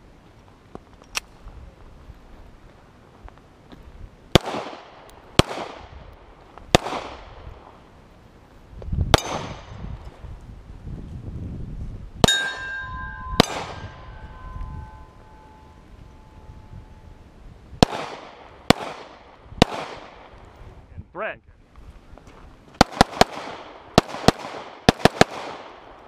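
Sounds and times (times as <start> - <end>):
handgun shots with echo: 9.2 - 9.7, 13.4 - 14.0
steel target ringing: 12.2 - 17.0.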